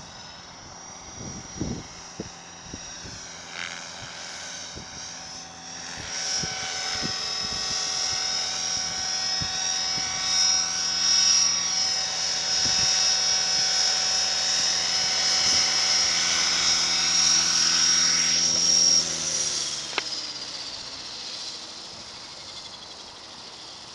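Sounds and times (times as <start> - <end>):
rc helicopter motor and rotor: 0.0 - 23.9.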